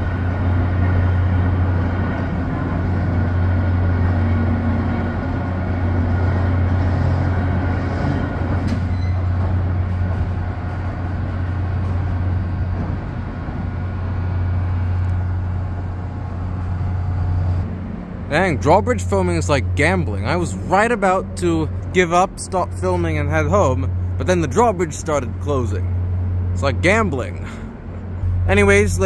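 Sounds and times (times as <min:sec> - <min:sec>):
drawbridge machinery humming: 0:00.0 - 0:29.0.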